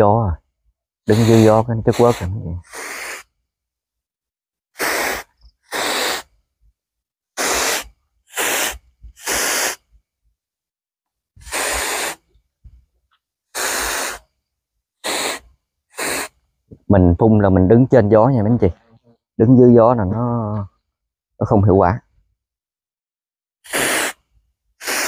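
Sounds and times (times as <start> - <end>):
mist sprayer hissing in bursts: 1.1 - 3.3, 4.8 - 6.3, 7.4 - 9.9, 11.4 - 12.3, 13.5 - 14.2, 15.0 - 16.4, 23.7 - 24.2, 24.8 - 25.0.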